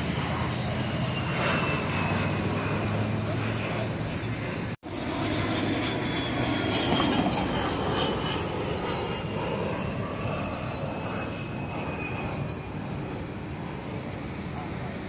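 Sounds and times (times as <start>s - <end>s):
small birds chirping: 0.0s - 4.5s, 10.0s - 14.9s
distant aircraft engine: 0.0s - 15.0s.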